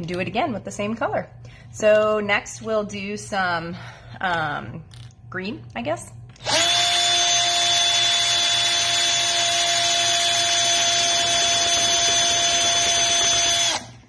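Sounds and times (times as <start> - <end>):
power drill whining: 6.4 - 14.0.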